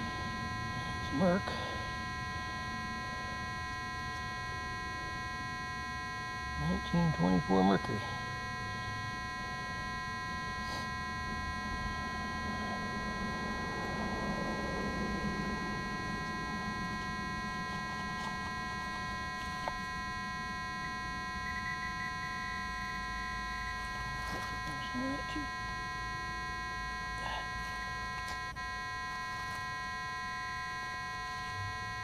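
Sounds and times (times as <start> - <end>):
steady electronic hum: 0.0 - 32.0
soil and grass rustling: 14.4 - 32.0.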